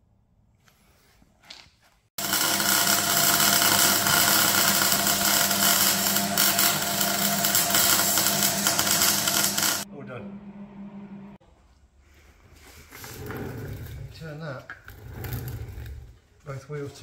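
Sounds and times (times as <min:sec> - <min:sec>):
arc welding crackle: 0:02.2 - 0:09.8.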